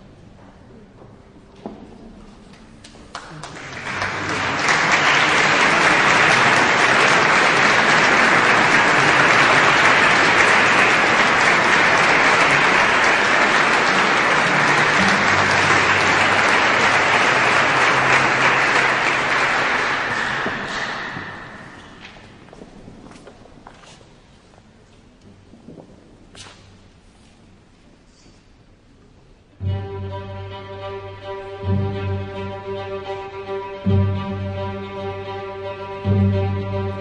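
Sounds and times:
audience applauding: 0:02.9 - 0:22.6.

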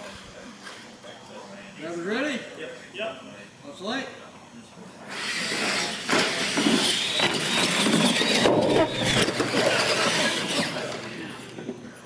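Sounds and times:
toy truck motor whine: 0:05.1 - 0:11.1
tyre noise on concrete: 0:06.2 - 0:09.9.

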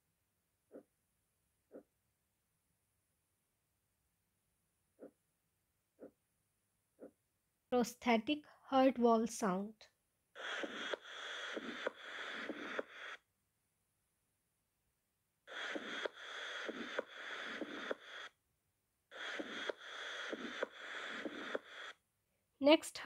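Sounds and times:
background hiss: 0:10.4 - 0:13.3, 0:15.5 - 0:18.4, 0:19.1 - 0:22.0
heart valve clicks: 0:15.5 - 0:18.3, 0:19.2 - 0:21.9.

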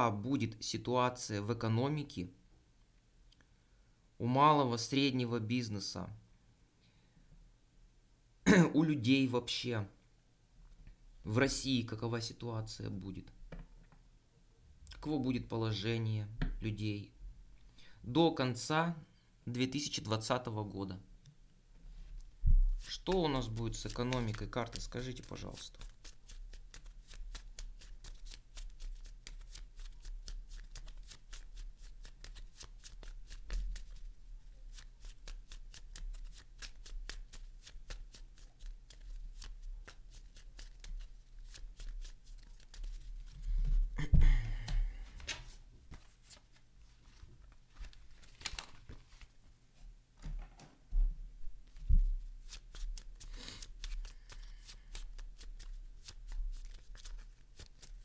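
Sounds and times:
playing cards being shuffled: 0:22.7 - 0:34.1, 0:34.7 - 0:43.7, 0:44.8 - 0:49.3, 0:51.7 - 0:58.0
cards rustling: 0:22.7 - 0:43.7, 0:44.8 - 0:49.4, 0:51.7 - 0:58.0.

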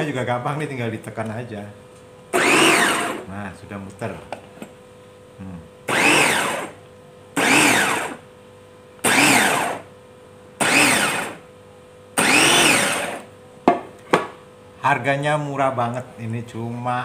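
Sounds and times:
electric food chopper whirring: 0:02.3 - 0:03.3, 0:05.9 - 0:06.8, 0:07.4 - 0:08.3, 0:09.0 - 0:09.9, 0:10.6 - 0:11.5, 0:12.2 - 0:13.3.

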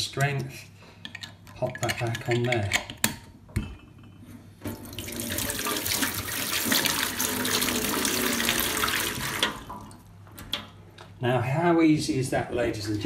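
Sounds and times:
tap water running into sink: 0:04.7 - 0:10.0.

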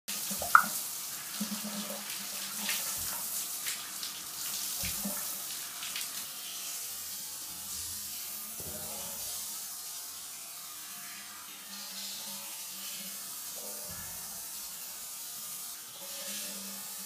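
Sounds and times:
water splashing on glass: 0:00.4 - 0:00.8.

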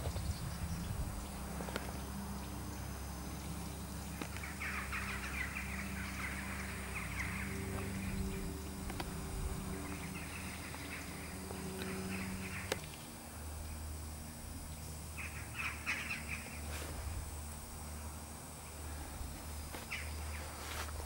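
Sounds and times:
birds chattering: 0:00.0 - 0:17.4, 0:18.6 - 0:20.9
steady low hum: 0:00.0 - 0:21.0.

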